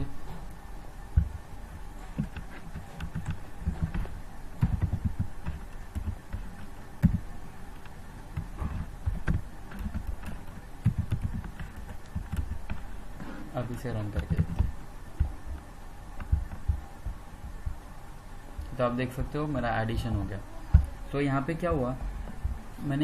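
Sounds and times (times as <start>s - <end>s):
low steady hum: 0.0s - 23.0s
computer keyboard typing: 2.2s - 12.9s, 13.7s - 17.8s.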